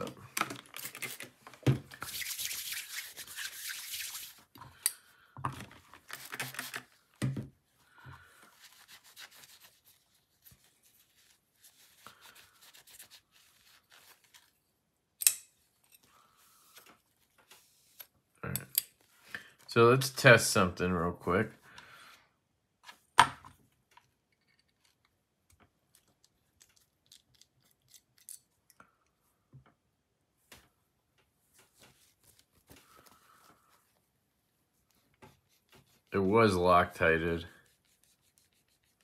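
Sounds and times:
rubbing and wiping: 2.0s - 4.5s, 8.4s - 14.5s, 31.5s - 36.4s, 37.0s - 39.0s.

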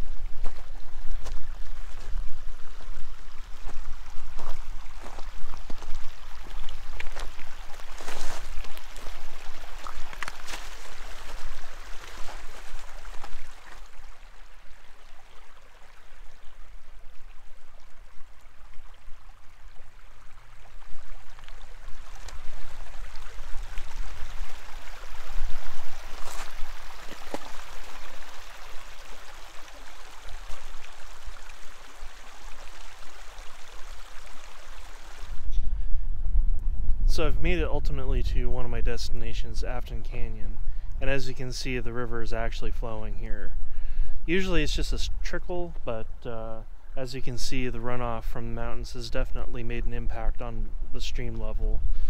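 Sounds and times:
river rushing over gravel: 0.0s - 35.4s.

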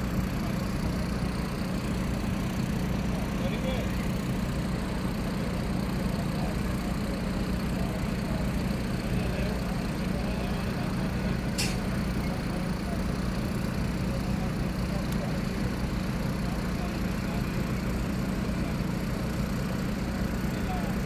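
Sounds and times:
fire truck engines idling: 0.0s - 21.0s
short sharp click: 11.6s - 11.8s.

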